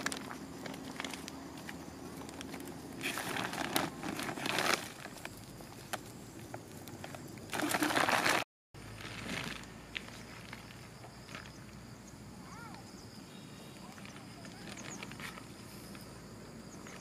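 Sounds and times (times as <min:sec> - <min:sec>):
rustling and scraping: 0:00.0 - 0:11.6.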